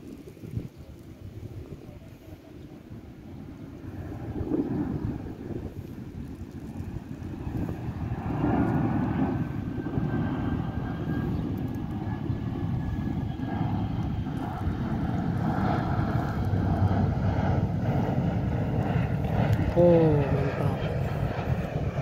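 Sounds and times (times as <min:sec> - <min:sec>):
aircraft rumbling overhead: 0:00.0 - 0:22.0.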